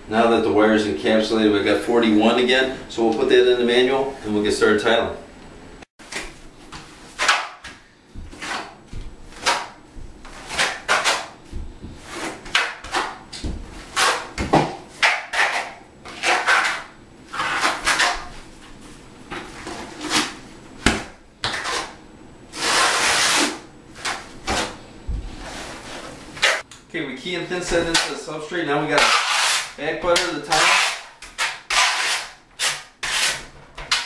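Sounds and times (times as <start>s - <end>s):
steel trowel scraping mortar: 29.0s - 29.8s.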